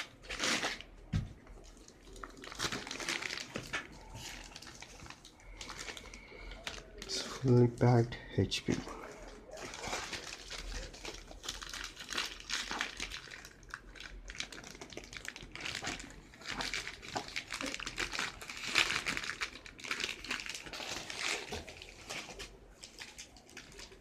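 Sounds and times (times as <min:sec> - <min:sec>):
plastic bag crinkling: 0:00.0 - 0:24.0.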